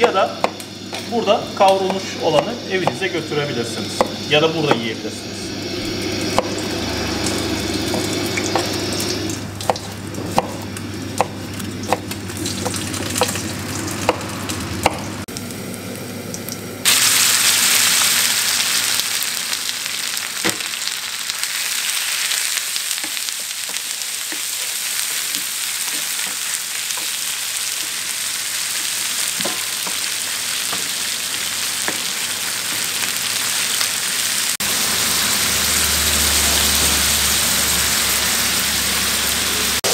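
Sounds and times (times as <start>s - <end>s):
meat sizzling in hot fat: 0.0s - 39.9s.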